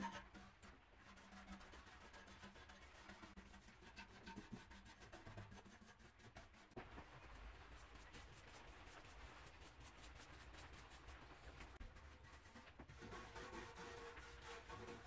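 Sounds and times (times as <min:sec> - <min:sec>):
paintbrush scratching on metal: 0:00.0 - 0:15.0.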